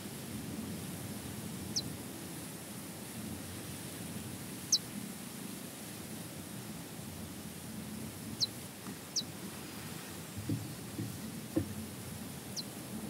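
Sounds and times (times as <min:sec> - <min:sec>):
low rumble of open field: 0:00.0 - 0:13.0
small bird chirping: 0:08.4 - 0:09.3, 0:12.5 - 0:12.8
soft low thumps: 0:10.3 - 0:12.1.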